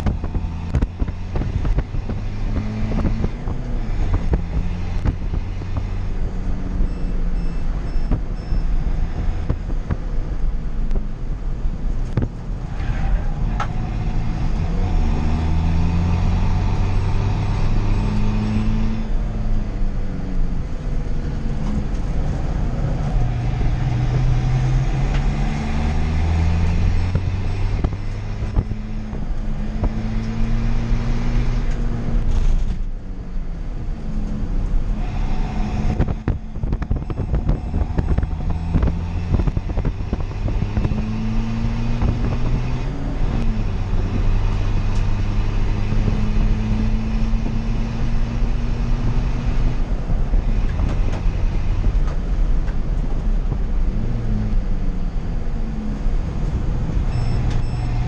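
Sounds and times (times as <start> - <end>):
race car engine accelerating: 0.0 - 9.9, 12.1 - 58.0.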